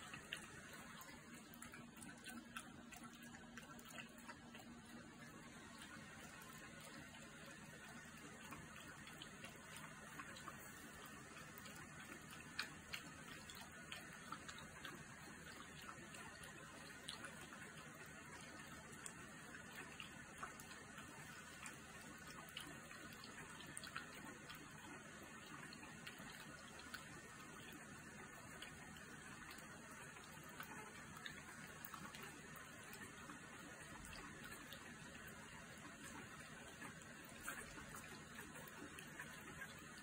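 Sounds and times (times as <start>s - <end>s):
puppies suckling: 0.0s - 40.0s.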